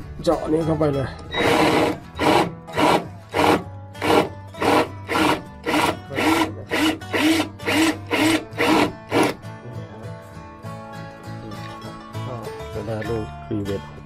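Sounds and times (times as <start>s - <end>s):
cordless drill drilling metal rivet: 1.4s - 9.4s.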